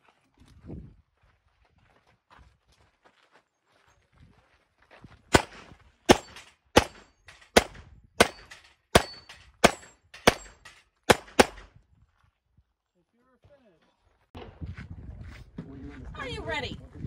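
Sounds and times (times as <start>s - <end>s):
handgun shots: 5.3s - 11.7s.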